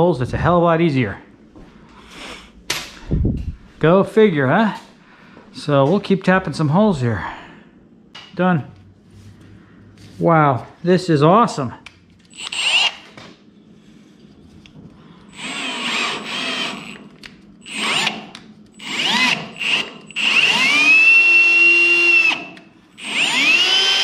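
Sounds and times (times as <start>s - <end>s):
cordless drill motor whine: 12.2s - 13.2s, 15.3s - 24.0s.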